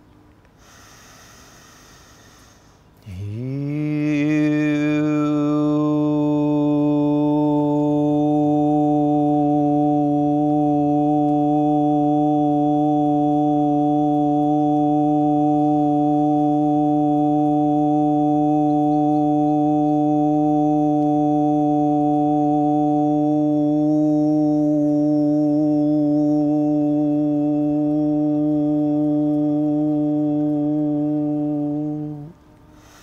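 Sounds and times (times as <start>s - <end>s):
deep steady drone: 0.9s - 33.0s.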